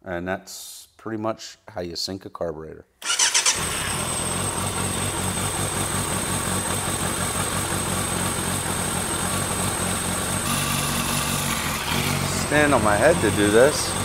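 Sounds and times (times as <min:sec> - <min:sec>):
motorcycle engine idling: 0:03.6 - 0:14.0.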